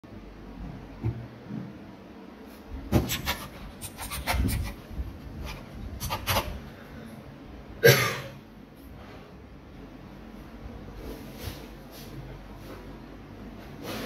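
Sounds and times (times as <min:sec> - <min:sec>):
man coughing: 0:07.8 - 0:08.4.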